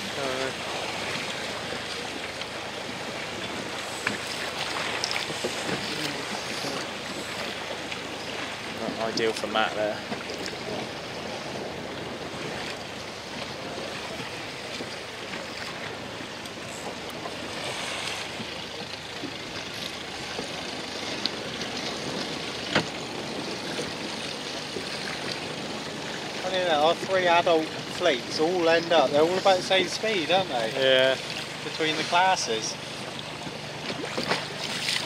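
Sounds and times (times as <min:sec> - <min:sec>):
sea water washing against boat: 0:00.0 - 0:35.0.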